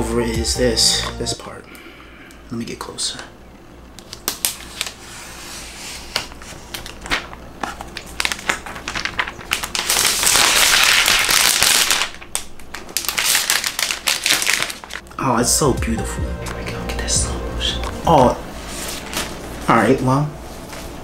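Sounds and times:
plastic wrap crinkling: 6.0 - 15.0.

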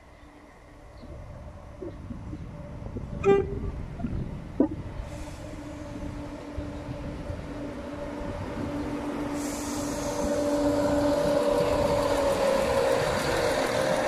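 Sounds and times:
train engine drone: 0.0 - 14.0
wheels on rails: 8.6 - 14.0.

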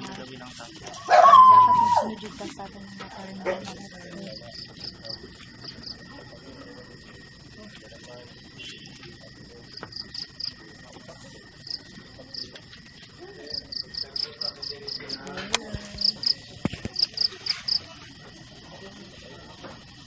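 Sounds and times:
crickets chirping: 0.0 - 20.0
steady high insect trill: 0.0 - 20.0.

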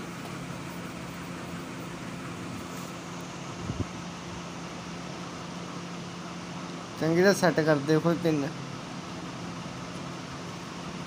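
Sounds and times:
room hum and hiss: 0.0 - 11.0.

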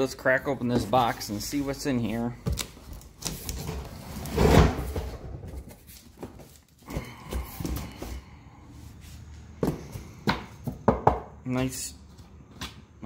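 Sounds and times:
cardboard and bubble wrap rustling: 0.6 - 8.2.

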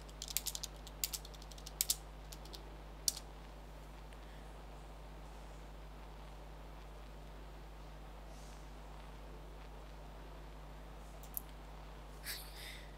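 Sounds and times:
typing on computer keyboard: 0.0 - 3.2.

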